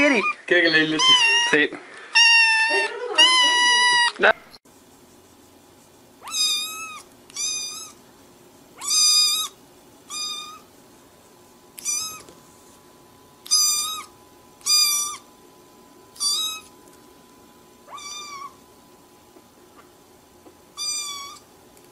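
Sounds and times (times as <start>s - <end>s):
kitten meowing: 0.1s - 4.2s, 6.2s - 8.0s, 8.8s - 10.6s, 11.8s - 12.3s, 13.5s - 15.2s, 16.2s - 16.7s, 17.9s - 18.6s, 20.8s - 21.4s.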